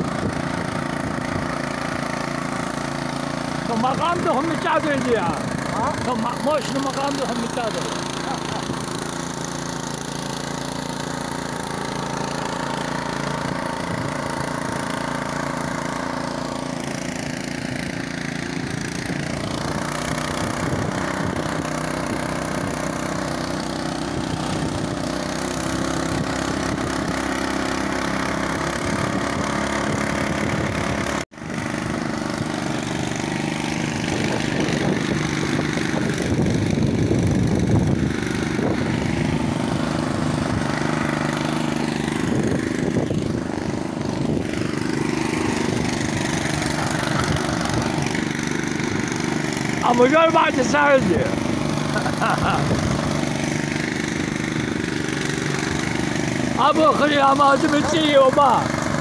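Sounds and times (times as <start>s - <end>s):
small tractor engine running: 0.0s - 59.0s.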